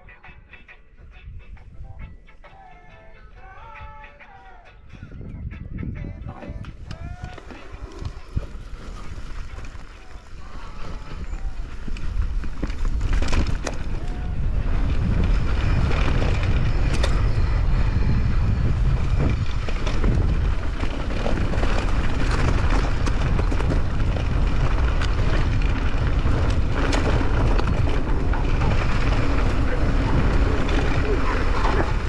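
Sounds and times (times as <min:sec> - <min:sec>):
wind buffeting microphone: 0:04.7 - 0:32.0
road noise: 0:06.7 - 0:32.0.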